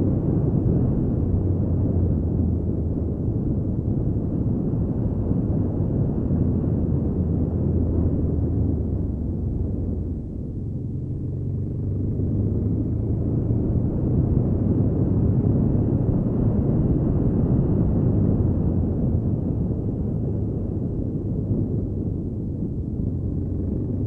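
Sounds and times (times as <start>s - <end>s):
wind noise: 0.0s - 24.0s
motorcycle engine rumble: 5.2s - 24.0s.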